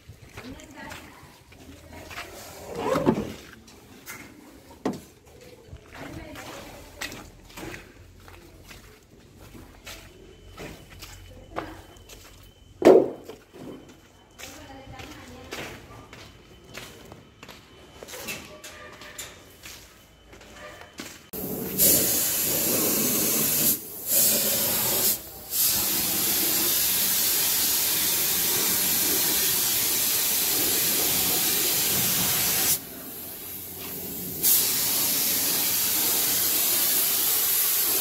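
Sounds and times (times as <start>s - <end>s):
paint spray gun hissing: 21.4s - 38.0s.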